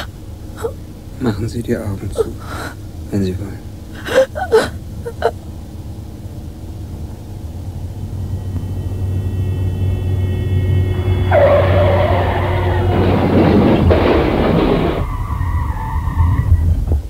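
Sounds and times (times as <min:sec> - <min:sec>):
tyres squealing: 0:00.0 - 0:05.4, 0:10.1 - 0:16.9
car and road noise: 0:00.0 - 0:17.0
loud car crash: 0:11.0 - 0:17.0.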